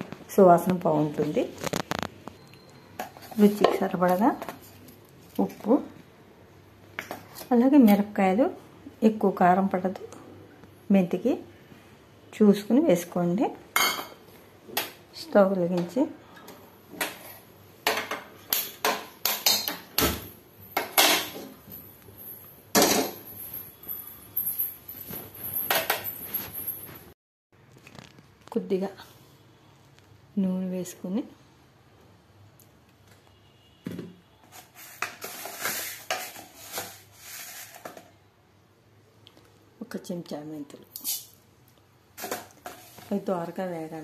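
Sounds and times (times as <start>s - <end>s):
kitchen utensils clattering: 17.0s - 21.8s, 22.7s - 24.0s, 25.0s - 27.1s
metal cookware clanking: 20.7s - 21.6s.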